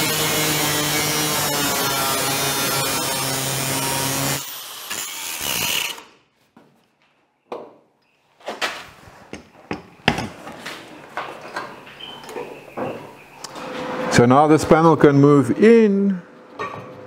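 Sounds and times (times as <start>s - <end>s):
angle grinder cutting steel: 0.0s - 6.1s.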